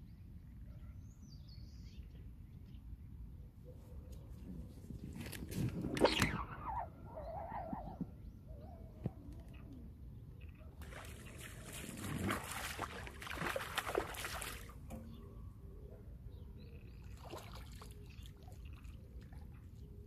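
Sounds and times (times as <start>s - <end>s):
fish splashing in water: 10.8s - 14.8s.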